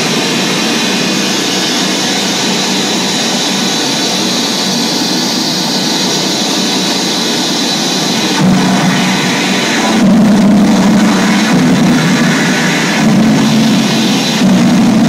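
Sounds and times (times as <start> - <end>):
electronic noise music: 0.0 - 15.0
low drone: 0.0 - 15.0.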